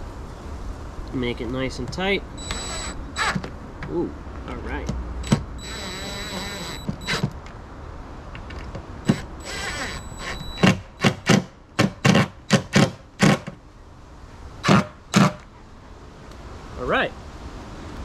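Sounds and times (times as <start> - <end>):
power drill whining: 2.4 - 3.4, 5.2 - 7.3, 9.0 - 10.8
loud sharp knocks: 10.6 - 13.6, 14.6 - 15.4.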